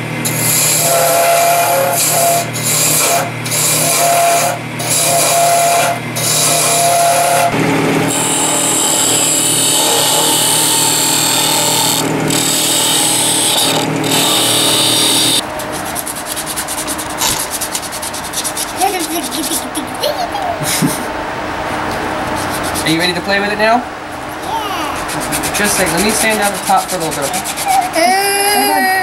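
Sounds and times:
gouge scraping on wood lathe: 0.3 - 19.6, 22.2 - 23.2, 25.0 - 28.1
rapid scratchy ticking: 25.0 - 27.9.

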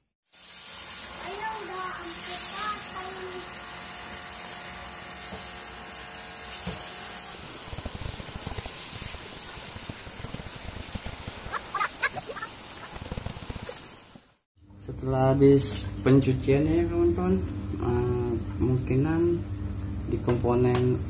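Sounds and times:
water jet hissing: 0.3 - 14.4.

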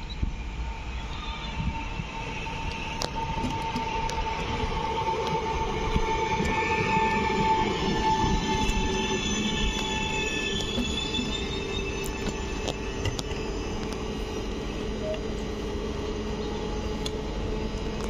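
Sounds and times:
steady whine: 0.0 - 18.0
train rumble: 0.0 - 18.0
high squealing tones: 0.9 - 13.9.

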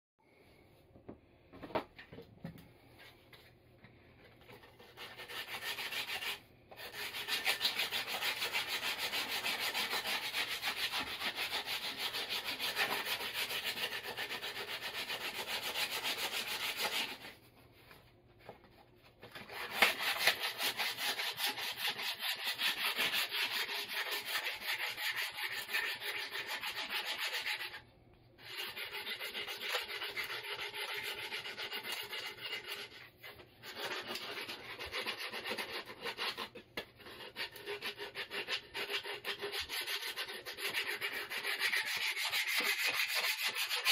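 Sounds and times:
sanding block rasping on wood: 5.0 - 17.3, 19.5 - 27.8, 28.4 - 33.0, 33.6 - 43.9.

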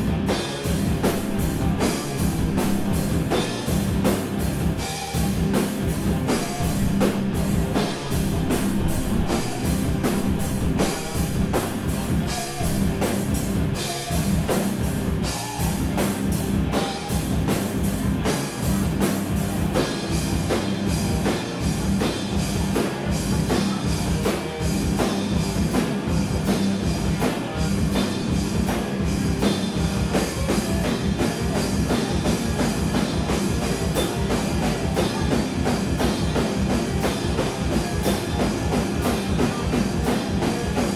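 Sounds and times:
drum kit hits: 0.0 - 40.9
electric guitar: 0.0 - 40.9.

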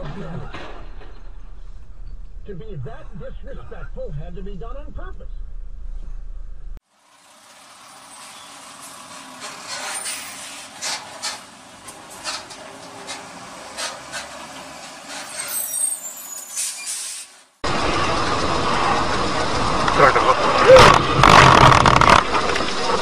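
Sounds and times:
traffic noise hiss: 6.9 - 20.6
high squeal: 7.8 - 11.1, 15.1 - 17.3.

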